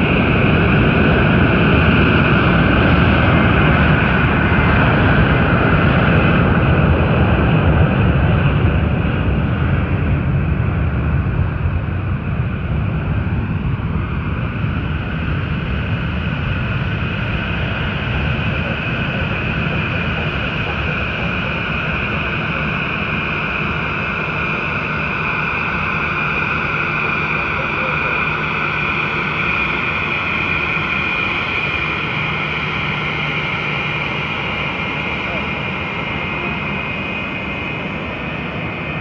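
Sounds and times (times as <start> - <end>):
jet engines roaring: 0.0 - 39.0
road vehicle rumble: 11.8 - 39.0
high whine: 14.6 - 39.0.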